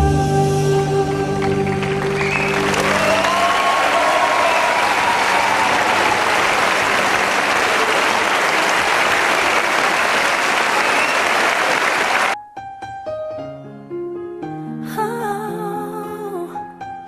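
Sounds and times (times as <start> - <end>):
audience applauding: 1.4 - 12.4.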